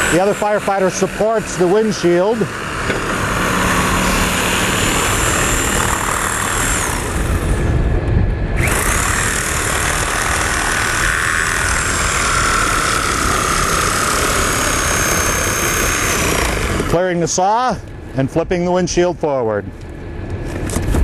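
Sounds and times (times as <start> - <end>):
reciprocating saw cutting glass: 0.0 - 7.7, 8.6 - 17.4
engine rumble: 0.0 - 21.0.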